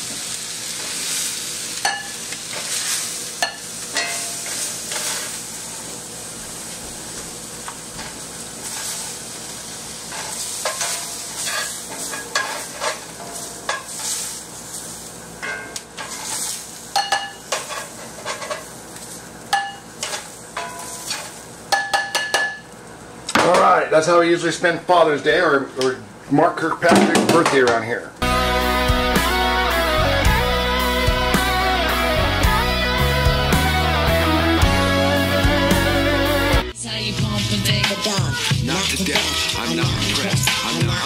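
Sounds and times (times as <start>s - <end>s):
steak sizzling in a pan: 0.0s - 23.2s.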